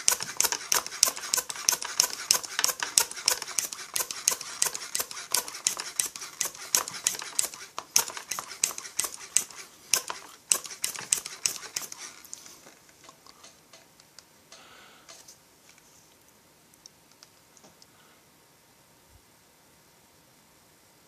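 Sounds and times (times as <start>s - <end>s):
hand vacuum pump clicking: 0.0s - 12.2s
faint noise: 12.0s - 21.0s.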